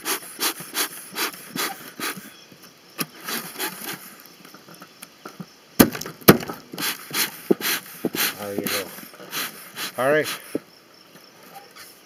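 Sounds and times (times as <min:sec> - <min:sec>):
smoker bellows puffs of air: 0:00.0 - 0:02.3, 0:03.2 - 0:04.1, 0:06.7 - 0:10.7.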